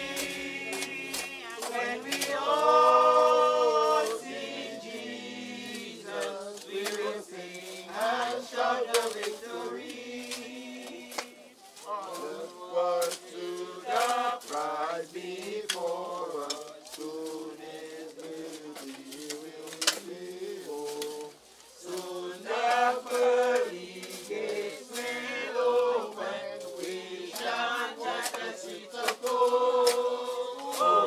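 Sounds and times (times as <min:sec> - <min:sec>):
group singing a hymn: 0:00.0 - 0:31.0.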